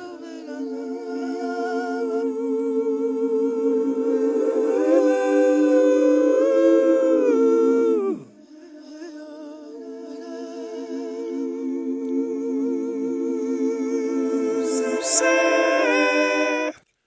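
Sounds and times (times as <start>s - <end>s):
voices singing a cappella: 0.0s - 16.8s.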